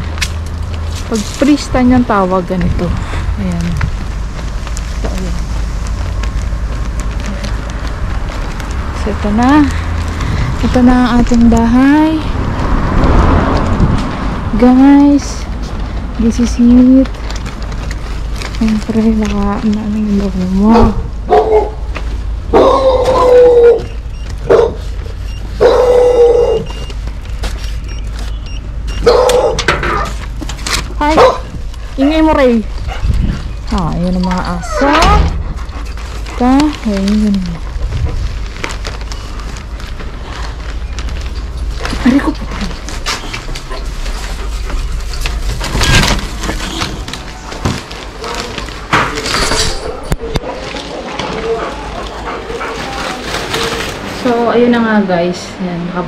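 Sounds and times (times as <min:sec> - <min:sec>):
dog howling barks: 0:20.7 - 0:21.9, 0:22.5 - 0:24.9, 0:25.6 - 0:26.8, 0:29.0 - 0:30.1, 0:31.2 - 0:32.2.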